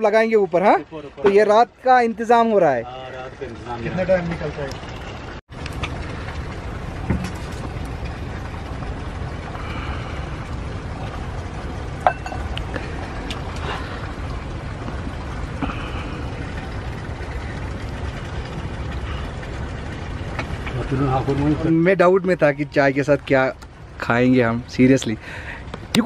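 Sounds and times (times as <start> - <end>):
low rumble: 3.2 - 26.0
ladle clinking on china cups: 12.0 - 12.6.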